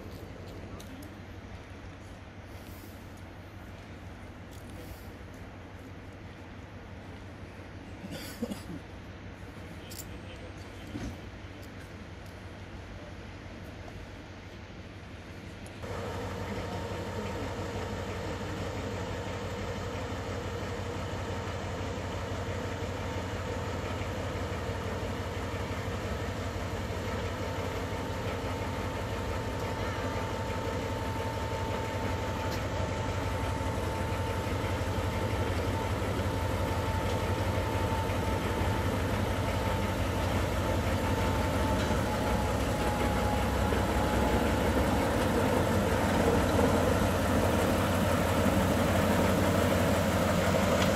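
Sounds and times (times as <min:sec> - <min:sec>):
diesel locomotive engine rumbling: 0:00.0 - 0:50.9
thin steady whine: 0:15.8 - 0:50.9.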